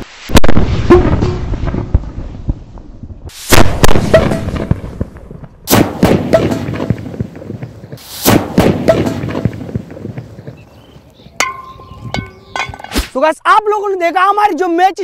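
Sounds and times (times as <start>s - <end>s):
explosive blast: 0.3s - 10.1s
sharp cracks: 3.4s - 10.6s.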